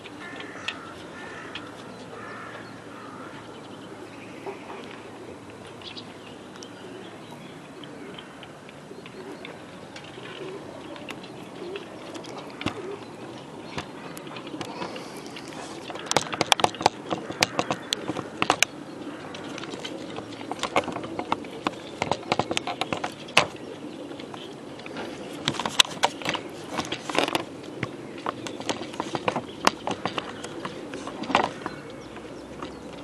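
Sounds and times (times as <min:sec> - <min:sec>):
pigeons cooing: 0:00.0 - 0:33.0
clicks and knocks from crates: 0:10.0 - 0:33.0.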